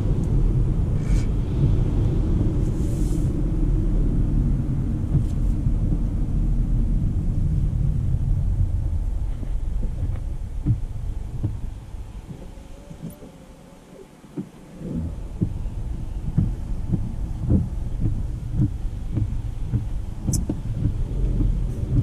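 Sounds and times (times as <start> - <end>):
tyre and road rumble: 14.0 - 22.0.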